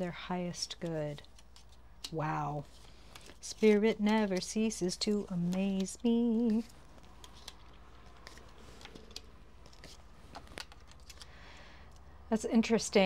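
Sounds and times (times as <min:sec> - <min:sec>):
cards clicking on a table: 0:05.5 - 0:11.3.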